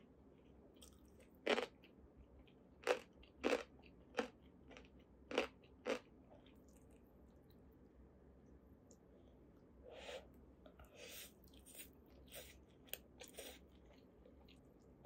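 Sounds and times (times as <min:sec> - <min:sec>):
crunchy pickle chewing: 0:00.4 - 0:07.6.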